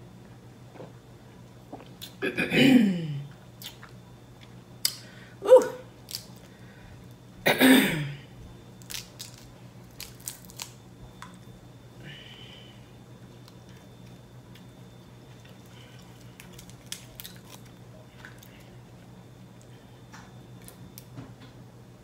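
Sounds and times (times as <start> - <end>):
person saying ooh: 5.4 - 5.9
crab shells cracking: 6.0 - 6.5, 8.8 - 11.4, 15.6 - 18.5.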